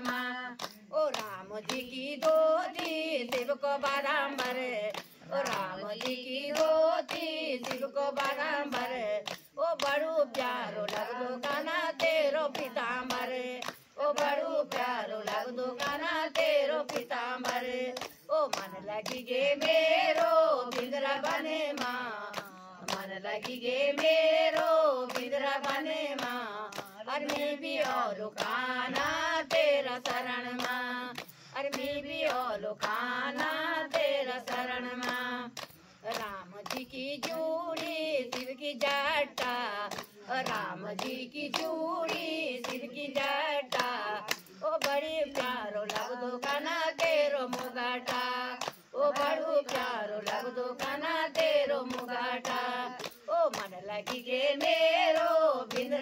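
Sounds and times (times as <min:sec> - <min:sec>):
hands clapping in rhythm: 0:00.0 - 0:56.0
women singing in unison: 0:00.0 - 0:56.0.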